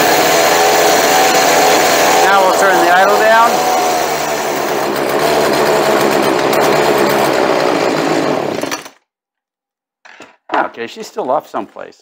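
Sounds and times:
chainsaw engine running: 0:00.0 - 0:08.9.

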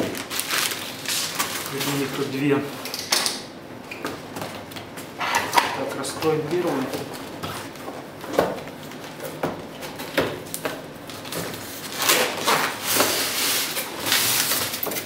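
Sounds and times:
styrofoam scraping out of box: 0:11.8 - 0:14.9.

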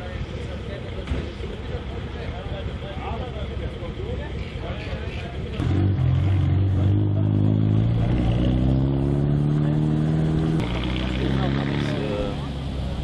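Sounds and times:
car engine idling: 0:00.0 - 0:05.6.

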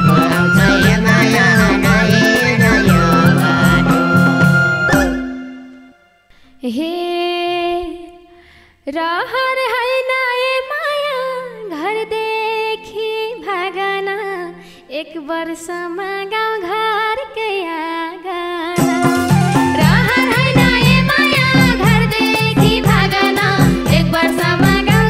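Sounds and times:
woman singing: 0:00.0 - 0:05.2, 0:06.6 - 0:25.0
band with drums: 0:00.0 - 0:05.4, 0:18.8 - 0:25.0.

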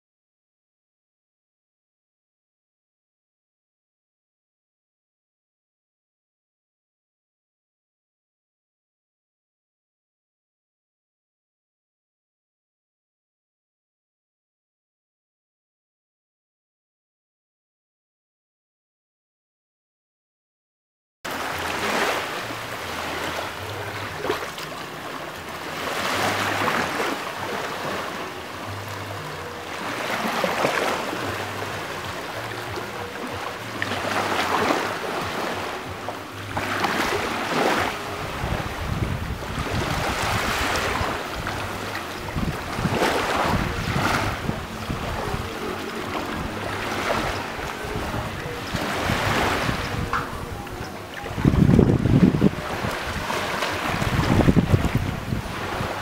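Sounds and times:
ocean surf washing ashore: 0:21.3 - 0:56.0
wind rumbling on microphone: 0:35.8 - 0:56.0.

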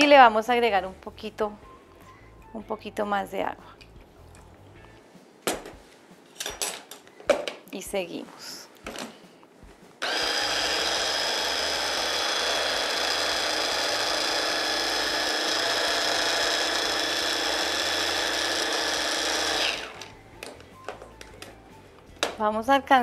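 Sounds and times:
hand blender motor running: 0:10.0 - 0:20.1.

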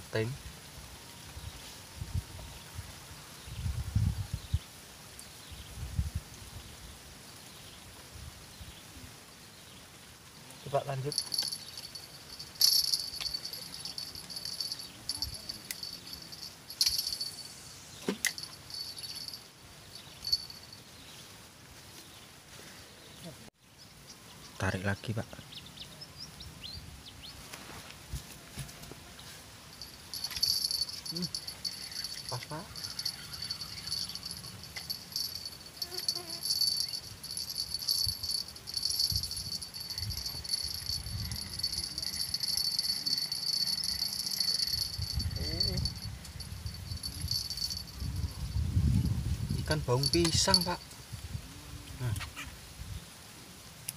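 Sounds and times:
insects chirping: 0:09.9 - 0:21.3, 0:29.6 - 0:51.0.

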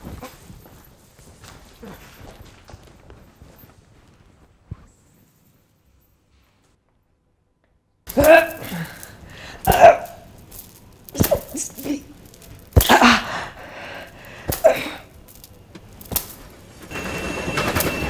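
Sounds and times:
woman sobbing: 0:08.2 - 0:10.2, 0:12.8 - 0:15.1.

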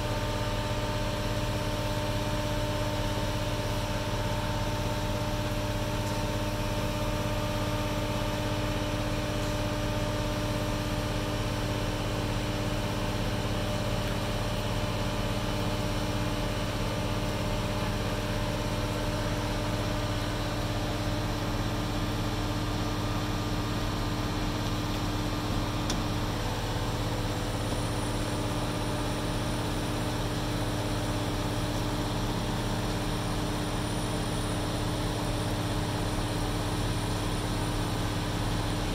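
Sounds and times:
diesel engine running: 0:19.4 - 0:38.9.

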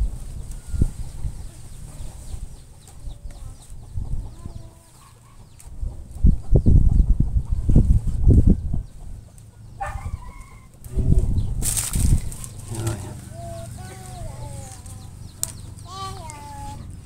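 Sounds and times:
chickens clucking: 0:00.4 - 0:17.0
dull low thumps: 0:10.8 - 0:12.4
bamboo strips handled: 0:11.6 - 0:13.3.

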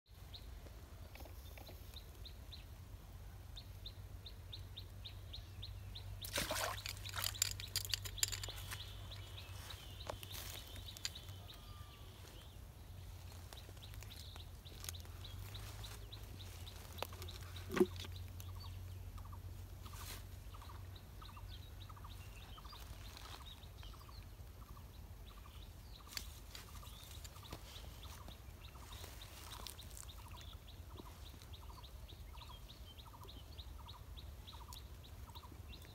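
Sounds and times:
birds chirping: 0:00.2 - 0:35.9.

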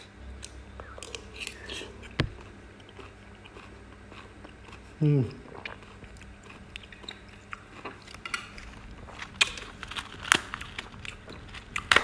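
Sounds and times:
chewing: 0:00.4 - 0:12.0
crispy fried food crackling: 0:05.7 - 0:12.0.

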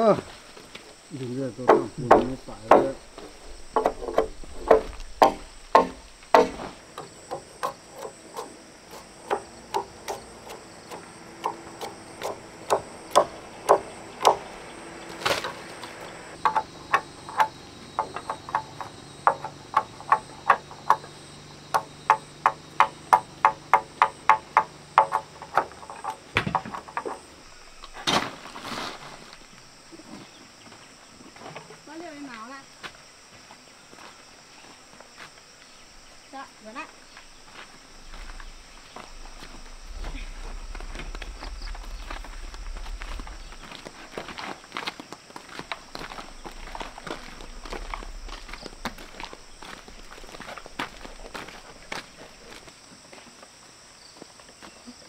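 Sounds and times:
high insect drone: 0:00.0 - 0:55.0
tool knocking wooden poles: 0:01.6 - 0:14.5, 0:16.4 - 0:27.3.

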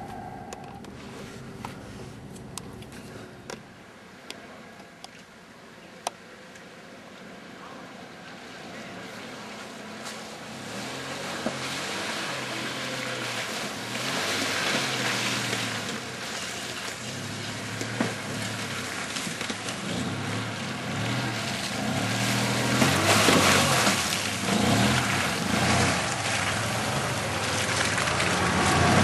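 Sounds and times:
truck engine revving in mud: 0:09.0 - 0:29.0.

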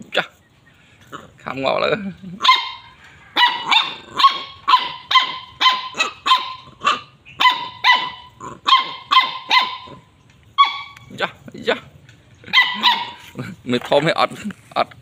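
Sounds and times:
puppy barking: 0:02.4 - 0:11.2, 0:12.4 - 0:13.5.

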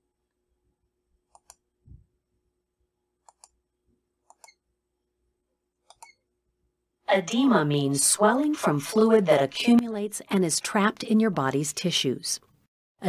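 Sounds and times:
computer mouse clicks: 0:01.3 - 0:01.6, 0:03.2 - 0:03.6, 0:04.2 - 0:04.6, 0:05.8 - 0:06.2.

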